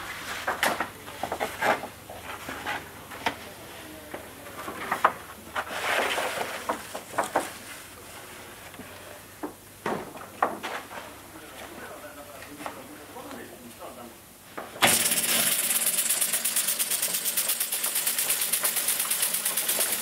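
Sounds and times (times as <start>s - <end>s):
wood veneer rustling and crackling: 0.0s - 9.2s.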